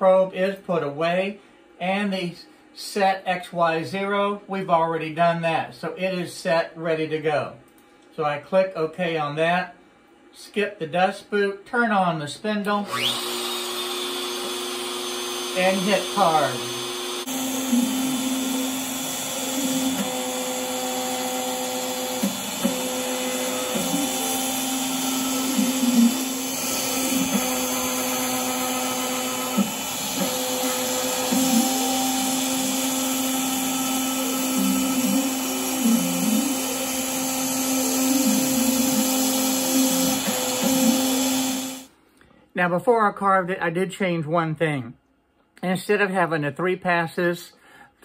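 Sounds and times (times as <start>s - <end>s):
router spindle whining: 12.8s - 41.9s.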